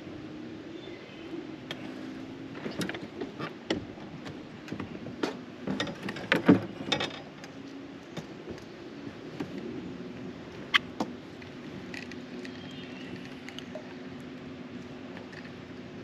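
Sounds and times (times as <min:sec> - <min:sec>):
low steady hum: 0:00.0 - 0:16.0
fishing gear clicks and knocks: 0:11.4 - 0:13.9.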